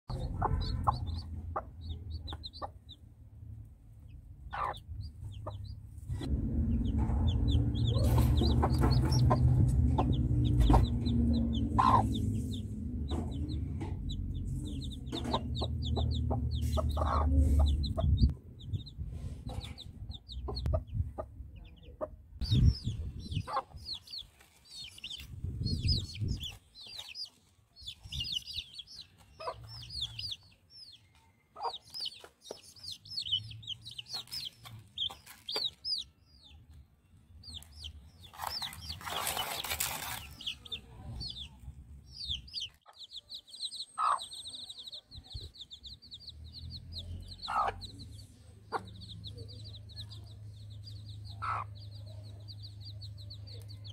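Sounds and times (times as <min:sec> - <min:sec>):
hen clucking: 0:00.1 - 0:03.1, 0:04.0 - 0:36.1, 0:42.2 - 0:53.9
chicks peeping: 0:00.1 - 0:53.9.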